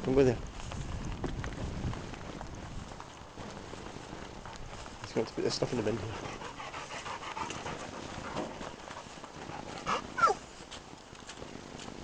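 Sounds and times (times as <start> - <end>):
dog whining: 9.9 - 10.4.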